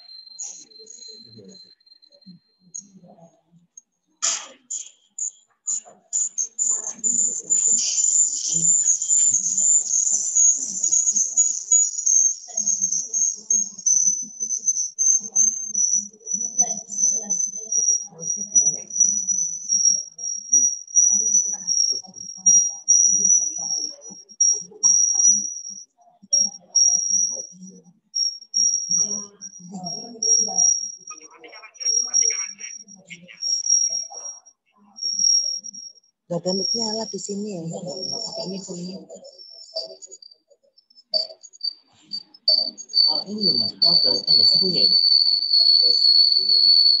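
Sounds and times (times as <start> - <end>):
high-pitched electronic whine: 0.0 - 3.1, 5.7 - 47.0
faint muffled voices: 2.8 - 11.3, 16.3 - 19.3, 28.9 - 35.2.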